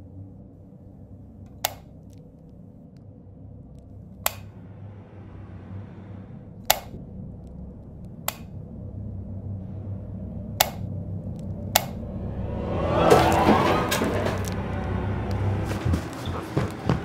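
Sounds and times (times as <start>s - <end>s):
low rumbling drone: 0.0s - 17.0s
sharp clicks: 1.5s - 2.2s, 4.2s - 4.5s, 6.7s - 7.0s, 8.0s - 8.6s, 10.6s - 12.0s.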